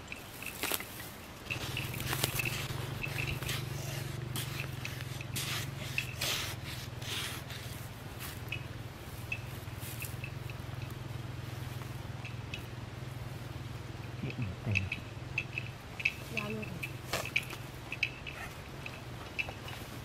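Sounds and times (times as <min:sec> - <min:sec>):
steady low hum: 0:00.0 - 0:20.0
hands scraping soil: 0:00.2 - 0:08.5.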